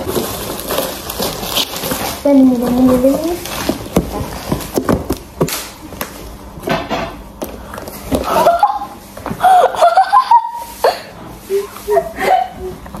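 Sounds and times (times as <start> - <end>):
cardboard rustling: 0.0 - 6.3
person speaking: 2.2 - 3.4.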